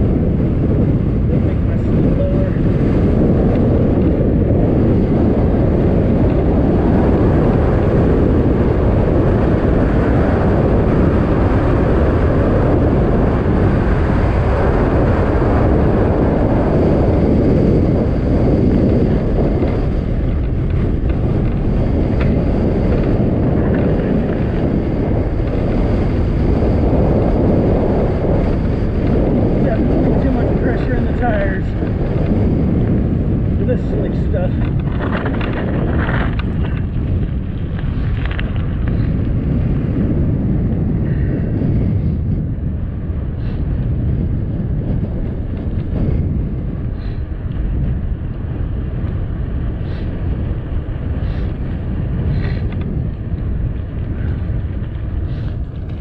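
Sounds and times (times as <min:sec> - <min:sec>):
wind rushing over microphone: 0:00.0 - 0:56.0
tyres rolling on pavement: 0:33.8 - 0:39.7, 0:47.2 - 0:56.0.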